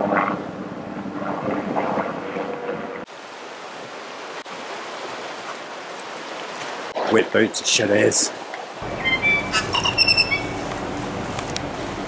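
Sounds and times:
wind: 0:00.0 - 0:12.0
rushing river water: 0:01.6 - 0:12.0
distant helicopter hum: 0:08.8 - 0:12.0.

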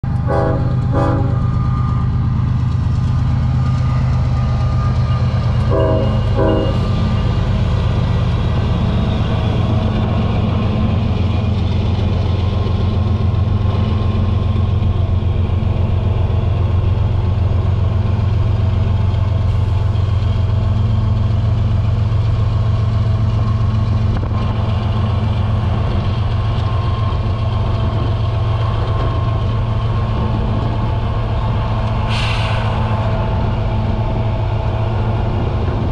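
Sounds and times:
diesel locomotive engine drone: 0:00.0 - 0:35.9
train horn blasts: 0:00.1 - 0:01.9, 0:05.6 - 0:07.0.

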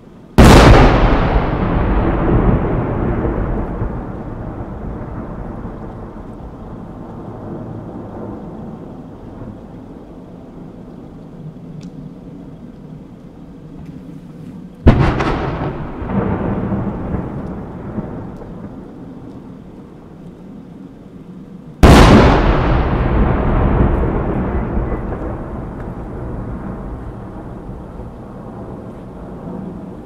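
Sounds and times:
rolling rumble: 0:00.0 - 0:30.0
firework shells booming: 0:00.4 - 0:06.2, 0:14.8 - 0:19.1, 0:21.8 - 0:30.0.

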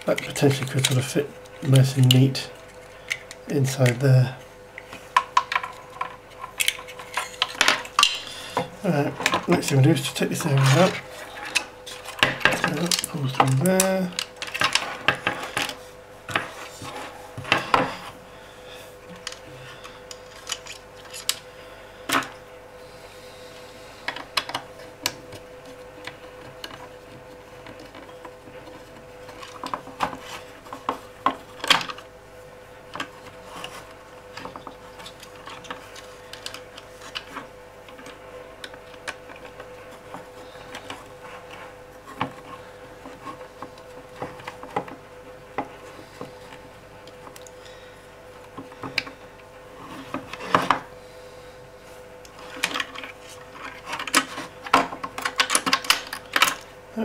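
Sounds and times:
faint steady hum: 0:00.0 - 0:57.0.

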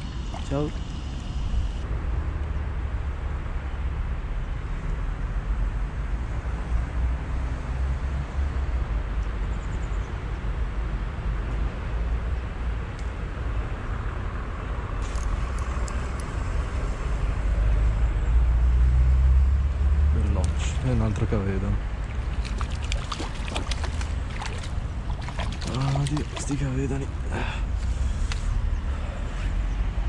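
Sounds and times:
distant road traffic rumble: 0:00.0 - 0:30.0.

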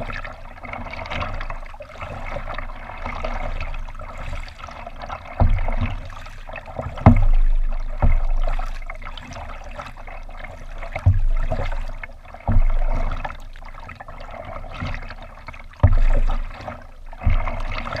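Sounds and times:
water lapping: 0:00.0 - 0:18.0
waves thumping kayak hull: 0:00.0 - 0:18.0.

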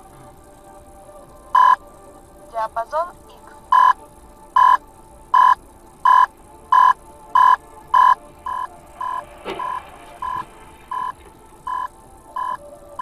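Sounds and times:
electronic beeping: 0:01.6 - 0:01.8, 0:03.7 - 0:13.0.

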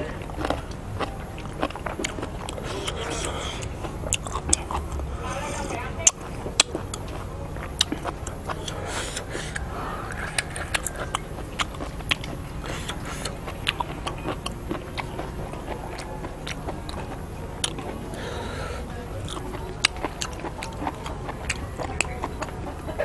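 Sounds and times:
low background noise: 0:00.0 - 0:23.0
person chewing food: 0:00.0 - 0:23.0
mouth clicks and smacks: 0:07.8 - 0:18.0.

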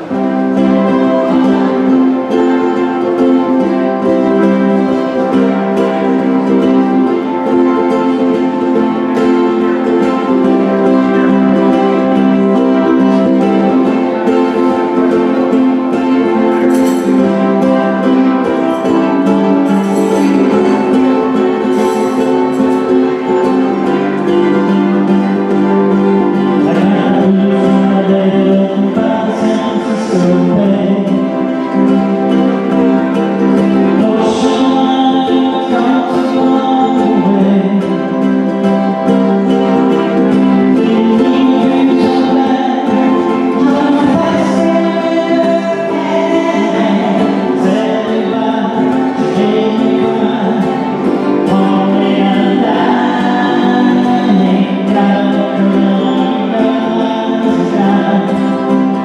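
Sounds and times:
voices singing together: 0:00.0 - 0:38.6, 0:39.4 - 0:59.0
strummed acoustic guitars: 0:00.0 - 0:59.0.

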